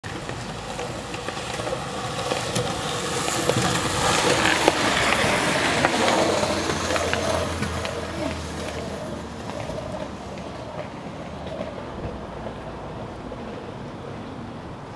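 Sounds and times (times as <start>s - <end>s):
rain falling: 0.0s - 11.7s.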